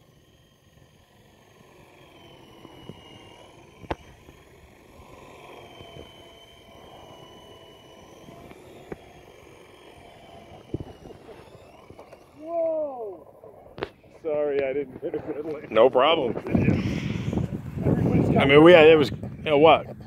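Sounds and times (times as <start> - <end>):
toy helicopter rotors whining: 0.0 - 20.0
sharp clicks: 2.7 - 7.2, 8.0 - 12.4.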